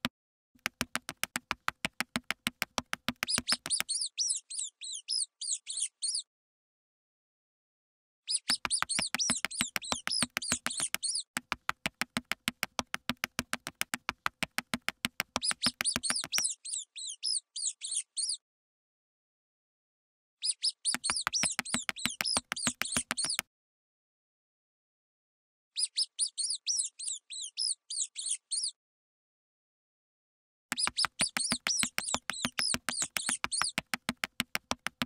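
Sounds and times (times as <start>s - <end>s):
tiny scurrying footsteps: 0.6s - 3.9s, 8.5s - 16.4s, 21.0s - 23.4s, 30.7s - 35.0s
mouse squeaks: 3.1s - 6.3s, 8.3s - 11.3s, 15.4s - 18.4s, 20.4s - 23.4s, 25.8s - 28.8s, 30.7s - 34.8s.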